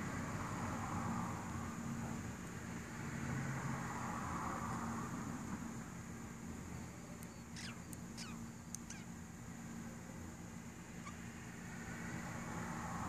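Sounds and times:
steady low hum: 0.0 - 13.0
budgerigars chirping: 7.5 - 9.1, 11.0 - 11.2.

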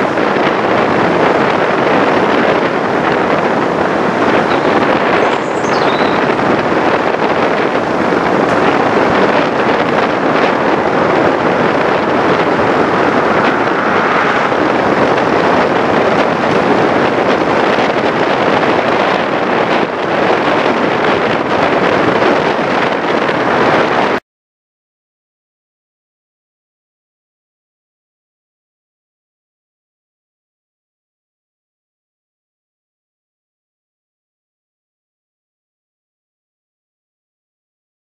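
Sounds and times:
car road and wind noise: 0.0 - 24.2.

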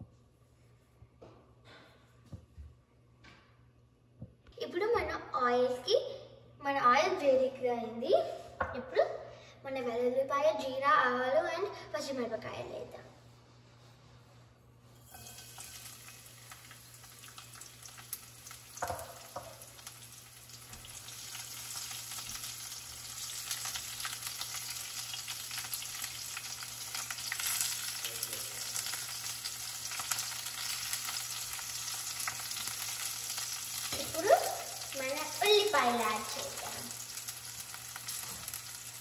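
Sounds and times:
spices sizzling in hot oil: 15.0 - 39.0.

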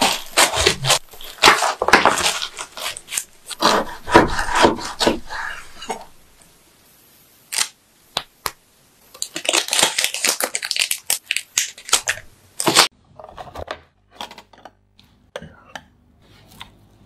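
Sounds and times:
candy wrappers crinkling: 0.0 - 6.1, 9.1 - 12.9.

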